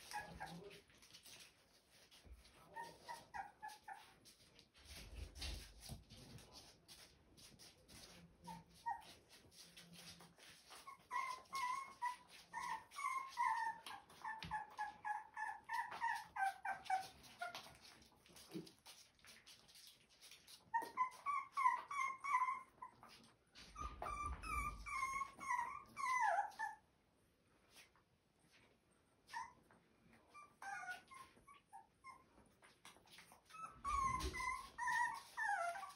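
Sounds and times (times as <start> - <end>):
puppy whimpering: 0.0 - 5.0, 8.4 - 18.7, 20.5 - 26.9, 29.2 - 35.9.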